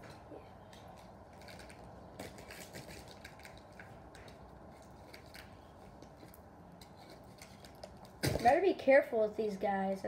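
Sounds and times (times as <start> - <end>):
packaging clicks and rustles: 0.7 - 6.4.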